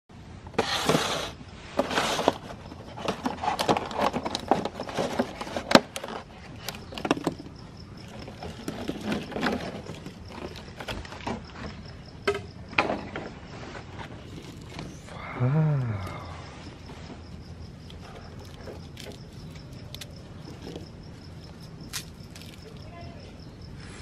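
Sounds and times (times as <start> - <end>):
plastic container crackling: 1.8 - 11.4.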